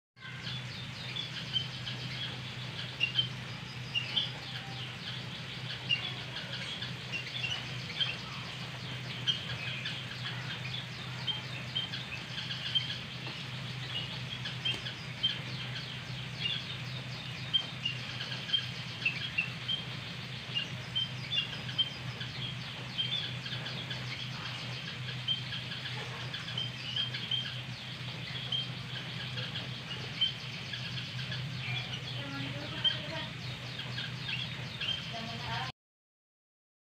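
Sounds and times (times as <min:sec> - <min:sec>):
birds giving high chirps: 0:00.2 - 0:35.7
steady low hum: 0:00.2 - 0:35.7.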